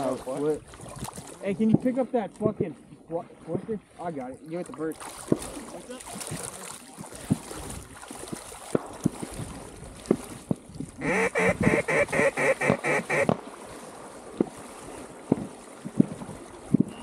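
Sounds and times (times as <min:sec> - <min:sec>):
duck quacks: 0:11.0 - 0:13.3.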